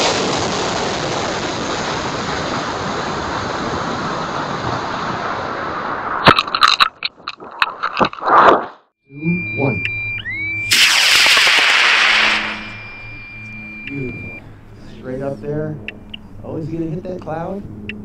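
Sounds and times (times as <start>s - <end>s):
rocket motor and airflow rushing: 10.5s - 16.5s
sharp crack: 10.7s - 13.7s.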